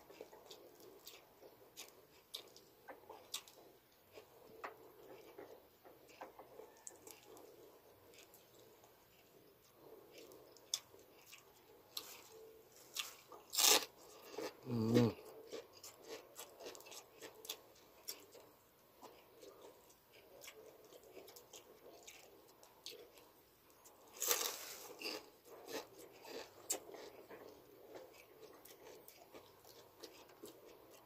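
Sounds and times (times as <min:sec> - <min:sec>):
crunching pork rind: 0:00.0 - 0:31.0
person vocal sound: 0:14.6 - 0:15.2.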